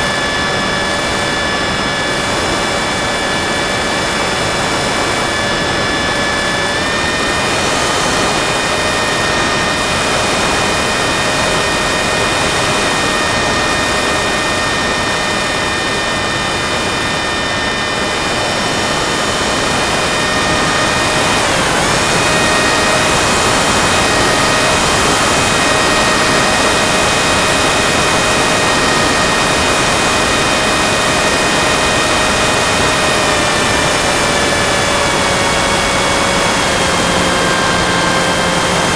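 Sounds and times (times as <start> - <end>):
model aircraft motor whine: 0.0 - 38.9
rushing air: 16.5 - 38.9.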